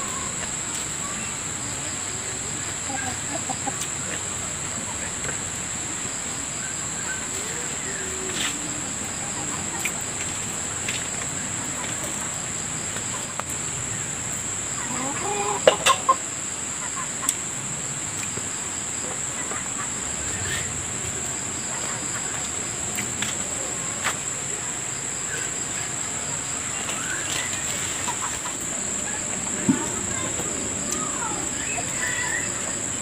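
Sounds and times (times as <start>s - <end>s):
chicken clucking: 2.4s - 5.4s, 14.7s - 17.4s, 26.7s - 30.4s.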